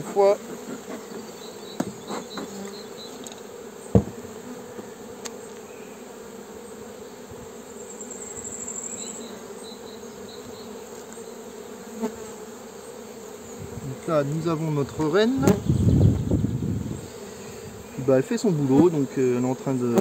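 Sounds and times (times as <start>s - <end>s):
honeybees humming: 0.0s - 20.0s
sharp knock: 4.0s - 4.2s.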